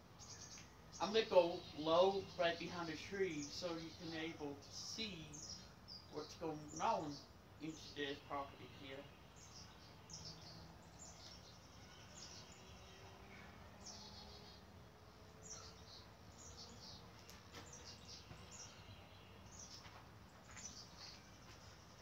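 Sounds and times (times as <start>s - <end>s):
faint bird chirps: 0.1s - 22.0s.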